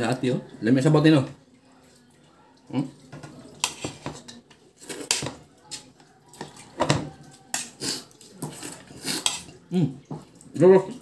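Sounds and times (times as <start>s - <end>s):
cutlery clinking on a plate: 3.2s - 7.8s, 8.4s - 9.5s.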